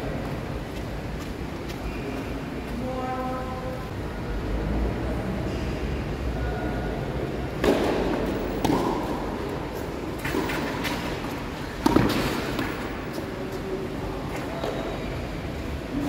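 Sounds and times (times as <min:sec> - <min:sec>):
tennis ball hits and bounces: 0:07.6 - 0:09.2, 0:11.8 - 0:12.8.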